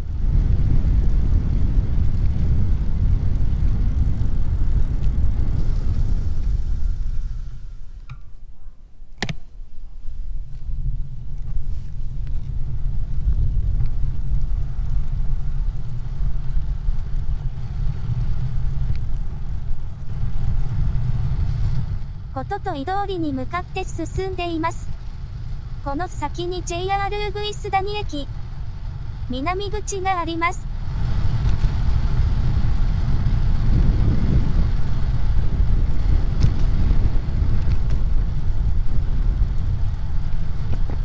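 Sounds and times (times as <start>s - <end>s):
wind and road noise rumble: 0.0s - 41.0s
sharp click: 9.2s - 9.5s.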